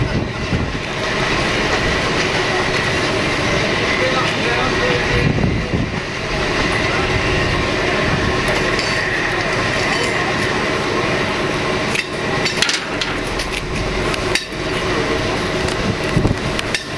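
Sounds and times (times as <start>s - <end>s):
steam locomotive rushing: 0.0s - 16.9s.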